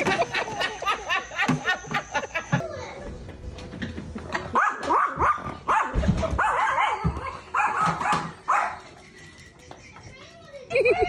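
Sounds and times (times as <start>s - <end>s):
dog barking and yelping: 4.5s - 8.8s.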